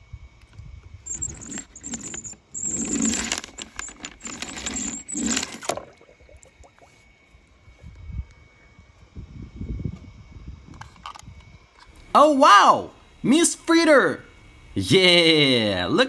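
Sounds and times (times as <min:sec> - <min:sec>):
toy car wheels rattling on paper: 0:01.1 - 0:05.7.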